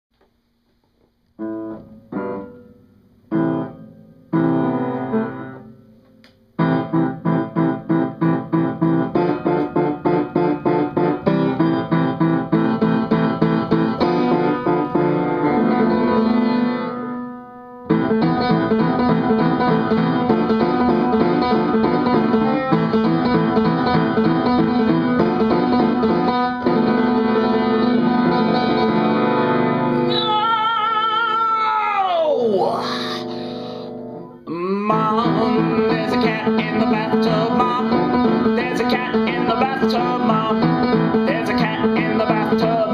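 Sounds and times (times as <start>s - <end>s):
solo piano chords: 1.4s - 5.9s, 6.6s - 30.1s, 33.8s - 42.9s.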